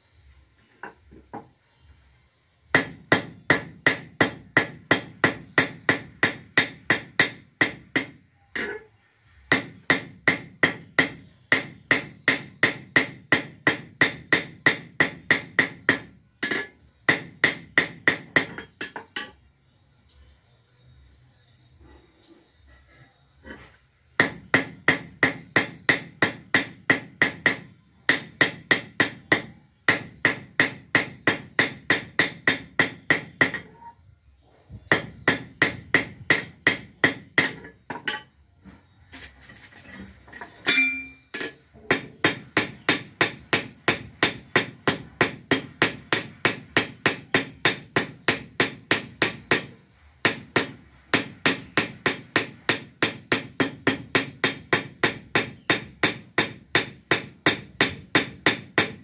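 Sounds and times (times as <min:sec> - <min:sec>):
hammer ringing on metal anvil: 0:40.7 - 0:49.7.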